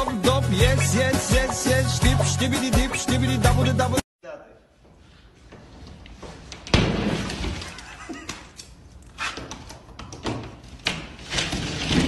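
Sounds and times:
drywall breaking through: 6.7s - 7.8s, 10.2s - 12.0s.

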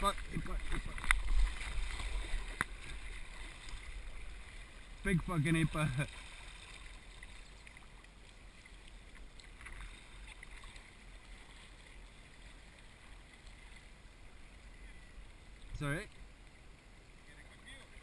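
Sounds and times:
paddle splashing in water: 0.0s - 15.1s
water washing along hull: 0.0s - 16.6s.

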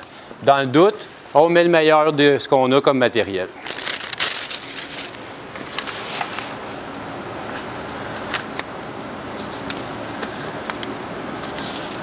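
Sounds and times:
membrane rustling: 3.6s - 12.0s.

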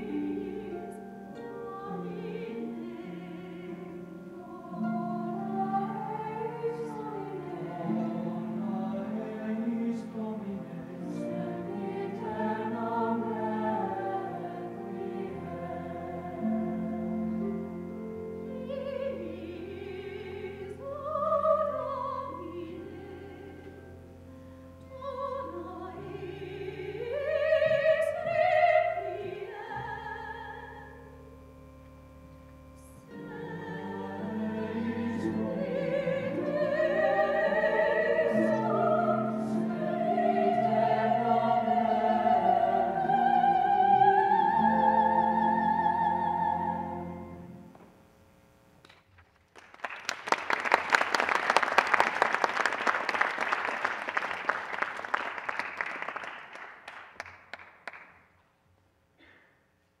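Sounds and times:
choir singing: 0.0s - 23.9s, 24.9s - 31.1s, 32.8s - 47.6s
soprano singing: 0.0s - 31.9s, 32.5s - 47.7s
low organ accompaniment: 29.0s - 48.5s
audience clapping: 48.9s - 58.3s.

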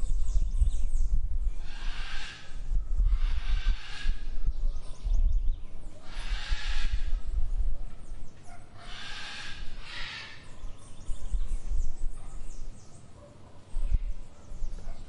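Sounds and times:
birds chirping faintly: 0.0s - 15.0s
loud harsh bird calls: 1.6s - 4.4s, 6.0s - 7.4s, 8.5s - 10.9s.

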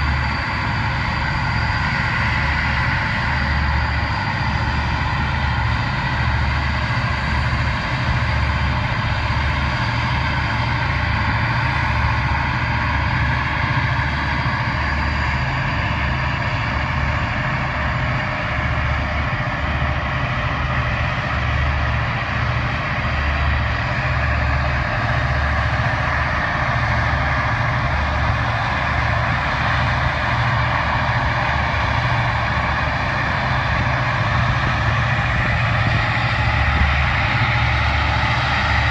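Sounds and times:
diesel engines droning: 0.0s - 38.9s
wind buffeting microphone: 24.6s - 38.9s.

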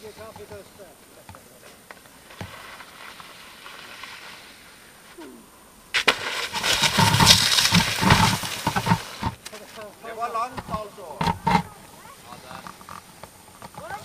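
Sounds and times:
skis and body sliding on snow: 0.0s - 11.2s
faint hiss: 0.0s - 14.0s
low thumps: 5.2s - 9.4s.

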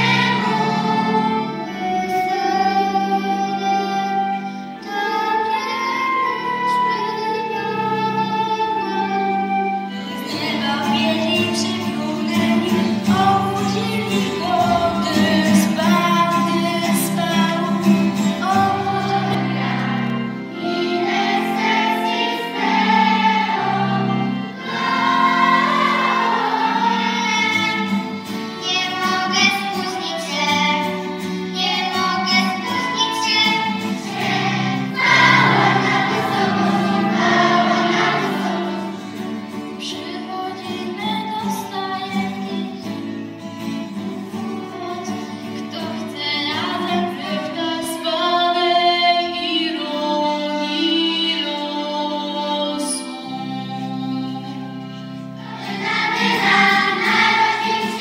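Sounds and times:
accordion: 0.0s - 58.0s
acoustic guitars: 0.0s - 58.0s
children's choir singing: 0.0s - 58.0s
flute: 1.3s - 12.2s.

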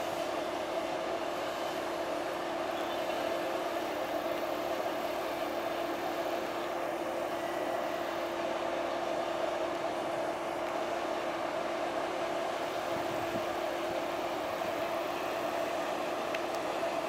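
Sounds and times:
diesel railcar engine idling: 0.0s - 17.0s.

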